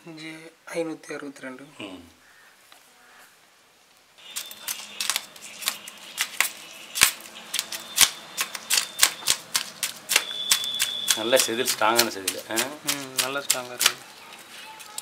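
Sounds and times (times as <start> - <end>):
knife scraping fish scales: 4.2 - 15.0.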